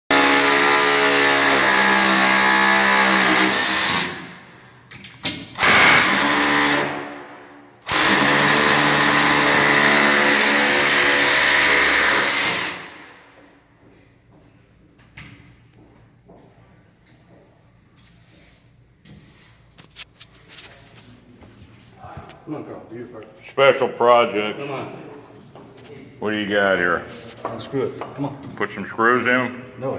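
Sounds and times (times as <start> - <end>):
cordless drill boring through metal: 0.1 - 4.2, 5.6 - 7.0, 7.9 - 12.9.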